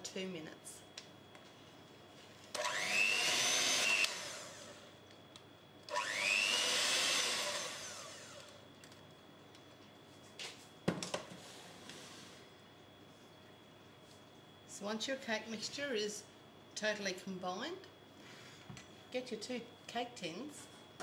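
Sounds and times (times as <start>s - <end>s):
electric hand mixer whining: 2.6s - 4.9s, 5.9s - 8.6s.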